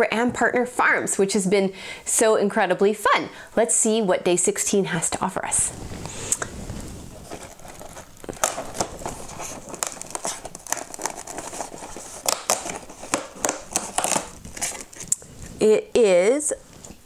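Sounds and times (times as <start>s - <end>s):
small box sliding out: 5.7s - 13.1s
cardboard tearing and crinkling: 5.7s - 15.5s.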